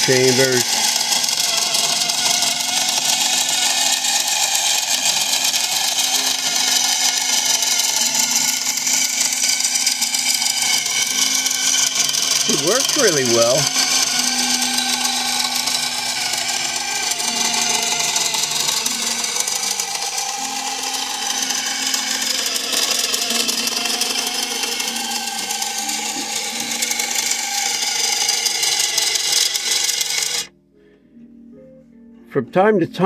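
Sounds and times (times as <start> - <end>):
electric motor whirring: 0.0 - 30.5.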